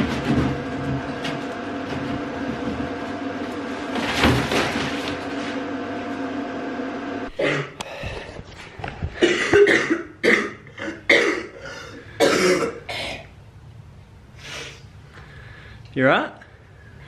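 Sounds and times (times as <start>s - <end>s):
steady hum: 0.0s - 17.0s
woman coughing: 7.3s - 7.8s, 9.2s - 13.2s.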